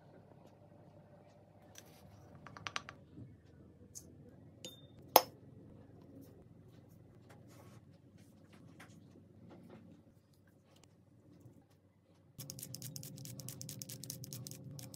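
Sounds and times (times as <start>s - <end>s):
faint scraping of seasoning: 12.4s - 14.9s.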